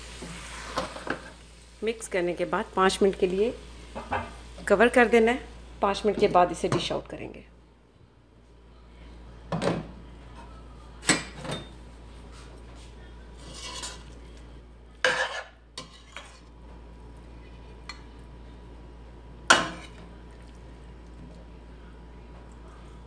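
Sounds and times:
spoon scraping metal pot: 0:13.4 - 0:14.1, 0:15.1 - 0:16.5.

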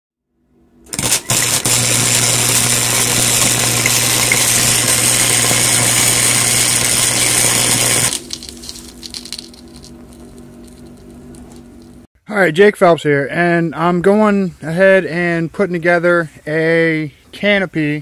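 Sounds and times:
low hum: 0:00.3 - 0:12.1
electric arc welding buzz: 0:00.8 - 0:12.0.

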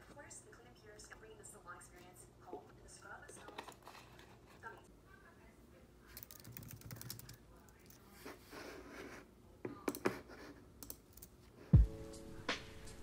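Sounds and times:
laptop keyboard typing: 0:06.1 - 0:08.0, 0:10.8 - 0:11.4
music with deep bass thump: 0:11.8 - 0:13.0.

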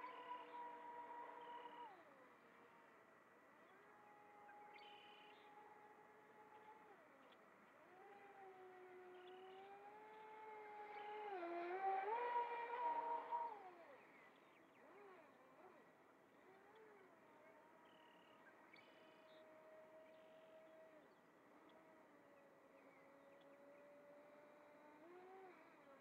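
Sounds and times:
electric motor boat whining past: 0:00.0 - 0:26.0.

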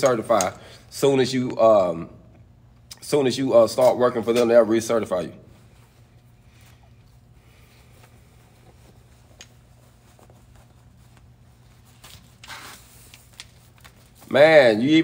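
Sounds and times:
low steady hum: 0:00.0 - 0:15.0
clothing rustle: 0:05.5 - 0:14.7.

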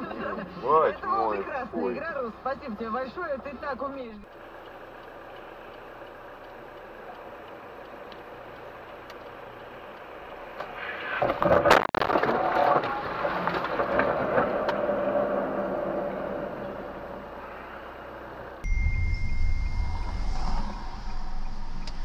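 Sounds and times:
traffic noise: 0:00.0 - 0:22.0
car road noise on wet road: 0:00.1 - 0:18.6
car crash: 0:10.6 - 0:16.9.

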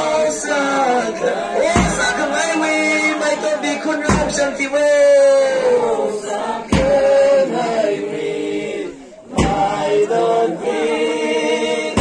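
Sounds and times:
group singing in unison: 0:00.0 - 0:12.0
heavy thump: 0:01.6 - 0:02.2, 0:04.1 - 0:04.5, 0:06.6 - 0:07.2, 0:09.3 - 0:09.9.

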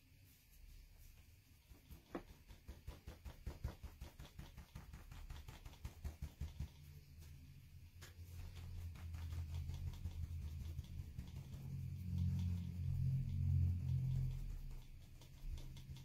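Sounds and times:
low rubbing sound: 0:00.0 - 0:16.0
paper towel dabbing taps: 0:01.7 - 0:07.0.

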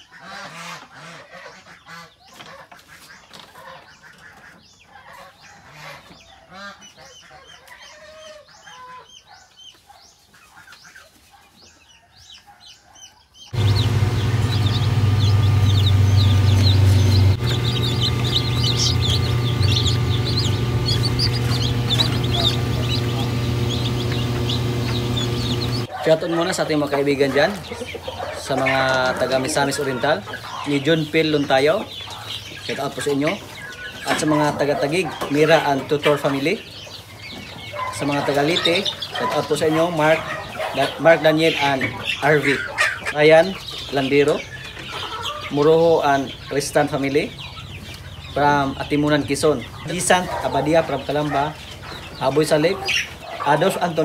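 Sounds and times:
chickens clucking: 0:00.0 - 0:54.0
chicks peeping: 0:00.0 - 0:54.0
incubator electric hum: 0:13.5 - 0:25.9.

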